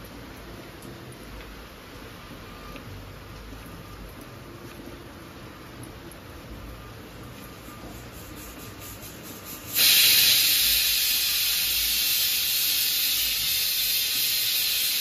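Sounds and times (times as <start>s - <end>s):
pressure cooker whistle hissing: 9.7s - 15.0s.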